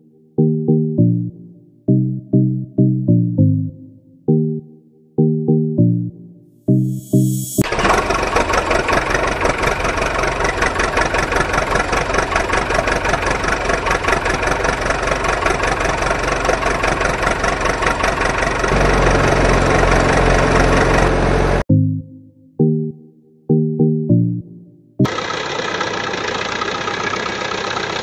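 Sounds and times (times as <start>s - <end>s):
engine running: 7.5s - 21.7s, 25.0s - 28.0s.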